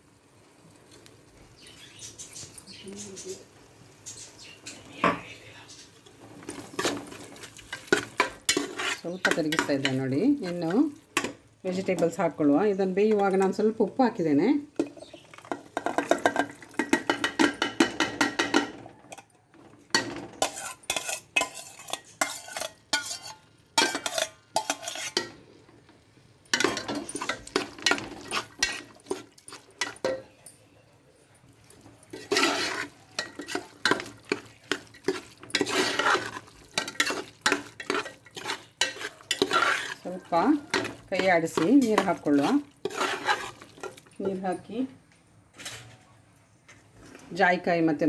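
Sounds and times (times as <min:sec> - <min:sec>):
metal spoon scraping pot: 0:06.4 - 0:12.2, 0:19.9 - 0:25.4, 0:26.5 - 0:30.4, 0:31.8 - 0:44.6.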